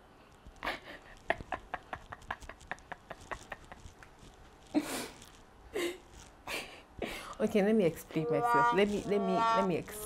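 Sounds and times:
woman laughing: 0:00.6 - 0:04.2, 0:05.8 - 0:06.8.

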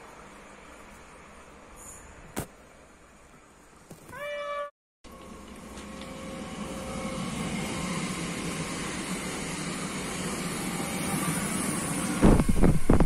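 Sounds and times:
train rumble approaching: 0:05.1 - 0:13.0
train rushing past: 0:05.1 - 0:13.0.

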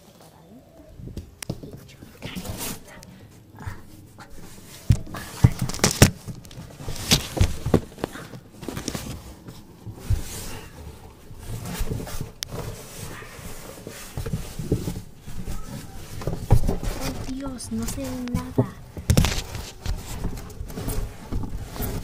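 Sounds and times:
cardboard rustling: 0:00.0 - 0:22.0
cardboard box knocks and thumps: 0:04.8 - 0:09.2.

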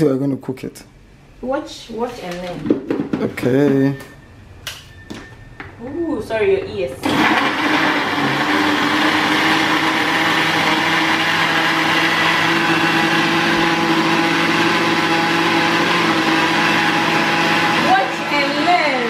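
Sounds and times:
blender motor whirring: 0:07.0 - 0:19.0.

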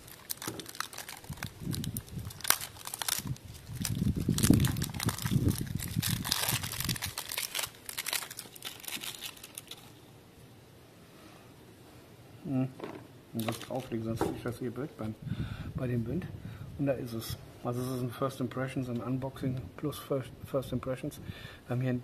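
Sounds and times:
plastic shrink-wrap crinkling: 0:00.0 - 0:10.0, 0:13.4 - 0:14.0
wind rumble on microphone: 0:01.2 - 0:07.2, 0:15.1 - 0:16.9.

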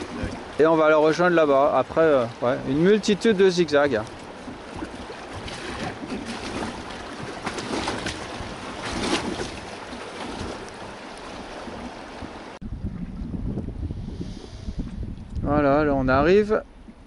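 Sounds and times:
paddle strokes: 0:00.0 - 0:12.6
river water splashing: 0:00.0 - 0:12.6
wind buffeting microphone: 0:00.0 - 0:17.0.

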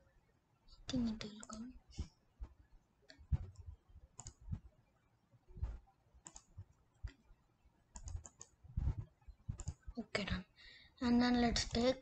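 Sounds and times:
computer mouse clicking: 0:01.2 - 0:02.1, 0:03.1 - 0:04.6, 0:05.6 - 0:07.2, 0:07.9 - 0:09.9, 0:11.5 - 0:12.0.

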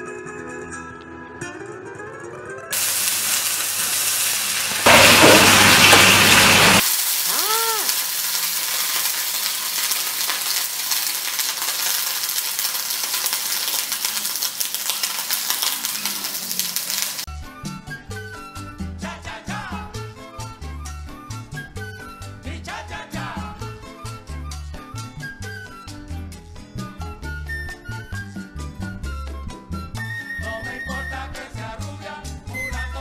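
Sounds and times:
shrimp sizzling in hot oil: 0:02.8 - 0:17.3.

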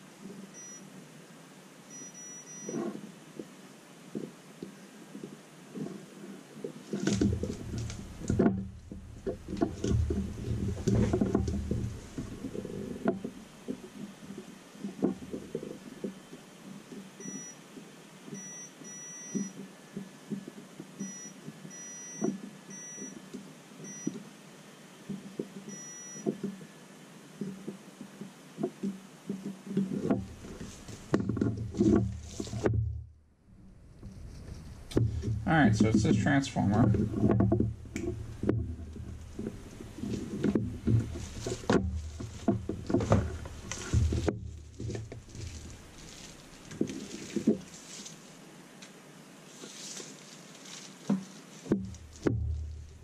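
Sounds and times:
multimeter continuity beeps: 0:00.5 - 0:00.9, 0:01.9 - 0:02.8, 0:17.2 - 0:17.6, 0:18.3 - 0:19.6, 0:21.0 - 0:23.2, 0:23.8 - 0:24.2, 0:25.7 - 0:26.3
rustling bubble wrap: 0:30.3 - 0:32.7, 0:38.2 - 0:48.4, 0:49.5 - 0:53.0.

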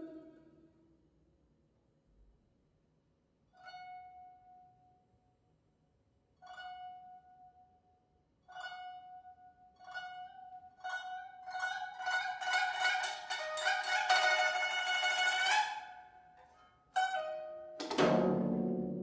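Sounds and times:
guzheng plucking high note: 0:09.9 - 0:16.1, 0:17.0 - 0:19.0.

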